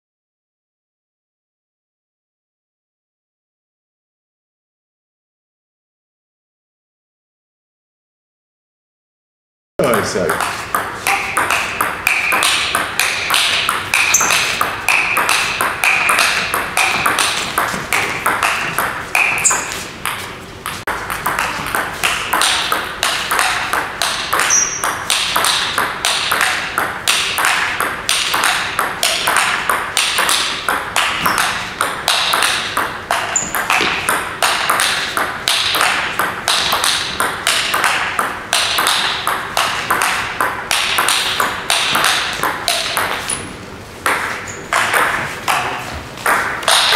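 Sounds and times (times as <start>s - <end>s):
table tennis ball clicks: 9.8s - 46.9s.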